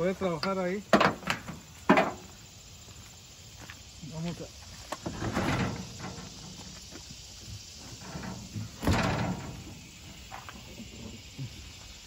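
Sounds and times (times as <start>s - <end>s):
metal cabinet bumping and scraping: 5.0s - 6.7s, 7.8s - 11.2s.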